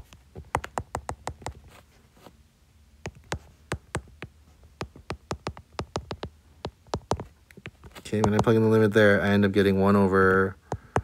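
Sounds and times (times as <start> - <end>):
stylus tapping on glass screen: 3.0 - 8.6.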